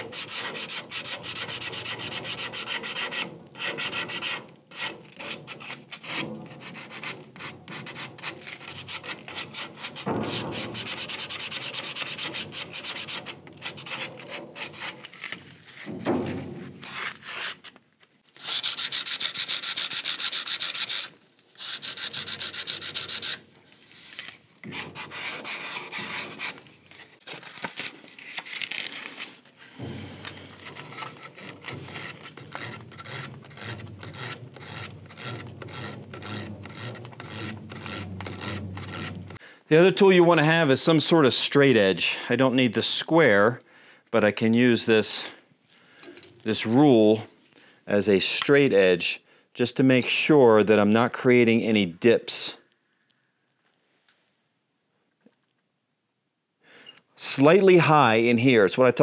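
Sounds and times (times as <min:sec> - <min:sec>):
sandpaper rubbing on wood: 0:00.0 - 0:15.0, 0:18.4 - 0:23.4, 0:24.7 - 0:26.6, 0:30.6 - 0:39.4.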